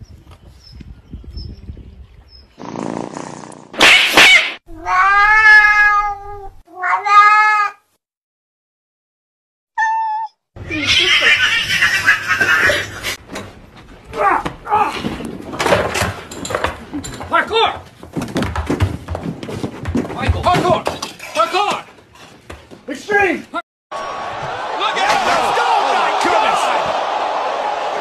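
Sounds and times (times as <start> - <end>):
cats yowling: 4.8 - 7.8.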